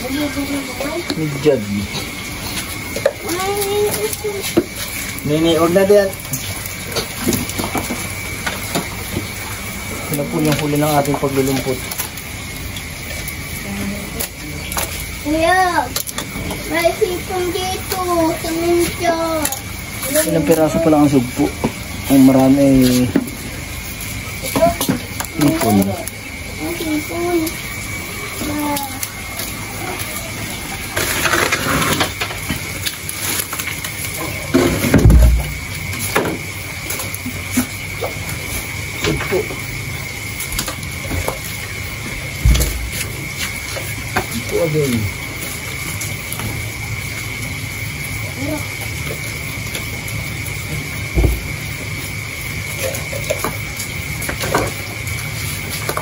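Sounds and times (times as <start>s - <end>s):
hands rustling wet leaves: 0.0s - 56.0s
thump: 34.6s - 35.5s, 51.2s - 51.4s
dull thump: 51.2s - 51.5s.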